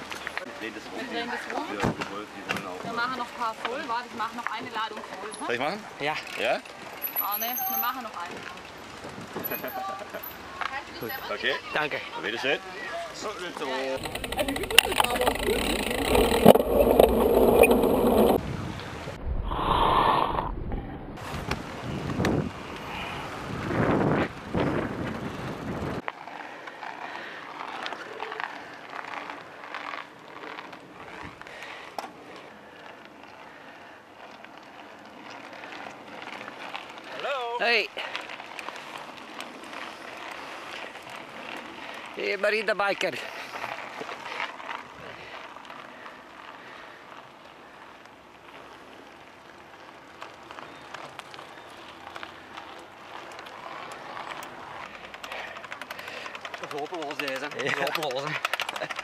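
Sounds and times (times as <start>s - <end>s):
bike clicks and rattles: 0.0s - 18.4s, 21.2s - 59.0s
bike tyre noise: 0.0s - 59.0s
wind buffeting microphone: 14.0s - 26.0s.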